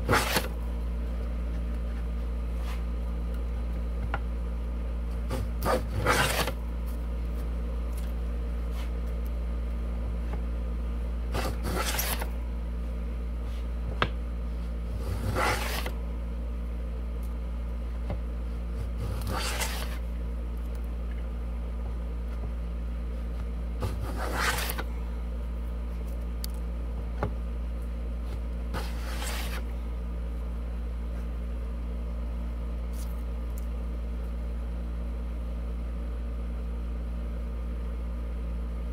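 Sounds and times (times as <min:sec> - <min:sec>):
steady low hum: 0:00.0 - 0:38.9
wooden plane rasping on board: 0:11.4 - 0:12.2, 0:15.0 - 0:15.9, 0:19.0 - 0:20.0, 0:23.8 - 0:24.8, 0:28.8 - 0:29.6.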